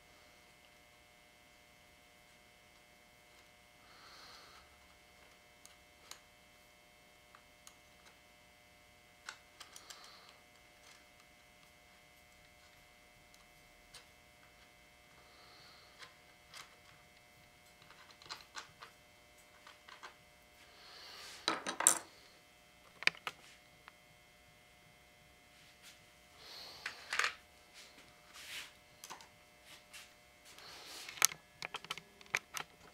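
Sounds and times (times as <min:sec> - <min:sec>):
soft rustles: 0:27.7 - 0:28.8.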